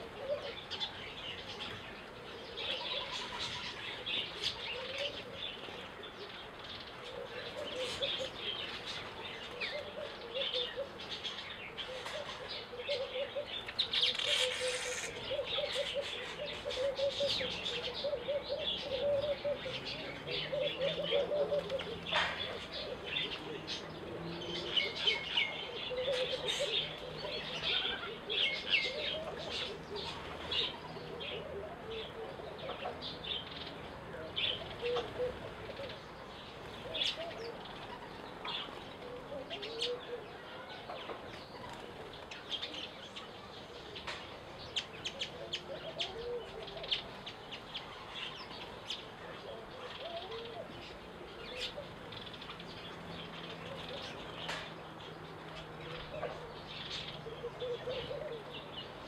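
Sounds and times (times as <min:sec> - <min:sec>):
small birds chirping: 0:00.0 - 0:59.0
low cooing: 0:11.8 - 0:33.2, 0:34.5 - 0:36.0, 0:45.3 - 0:47.1, 0:57.2 - 0:58.7.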